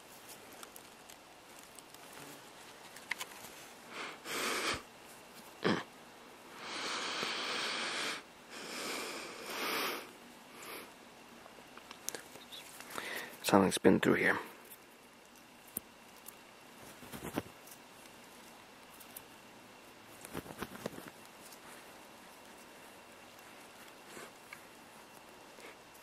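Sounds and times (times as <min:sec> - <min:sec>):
person breathing and sniffing: 0:03.8 - 0:04.9, 0:06.6 - 0:11.0, 0:12.8 - 0:13.4, 0:23.6 - 0:24.4.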